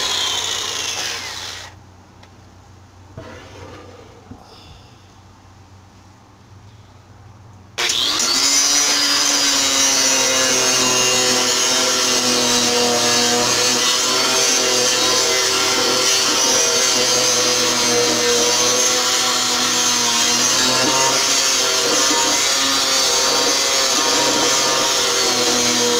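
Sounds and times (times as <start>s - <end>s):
electric orbital sander running: 0.0s - 1.8s, 7.8s - 25.9s.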